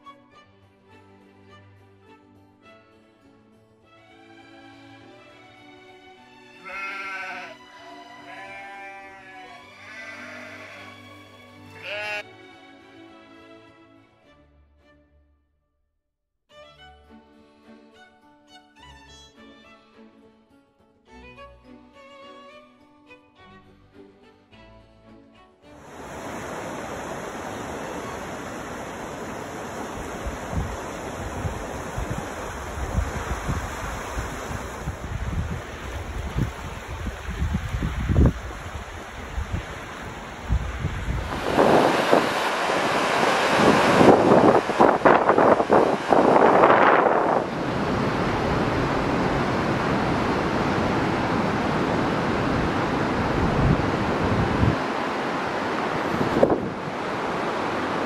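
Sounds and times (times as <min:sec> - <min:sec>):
violin music: 0:00.0 - 0:15.2, 0:16.5 - 0:26.1
fast-flowing river: 0:25.7 - 0:58.0
wind buffeting microphone: 0:27.0 - 0:57.6.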